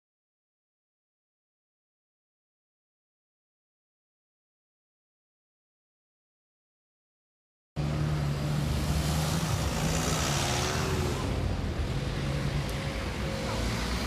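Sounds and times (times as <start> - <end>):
traffic noise: 7.8 - 14.0
vehicle engines humming: 7.8 - 14.0.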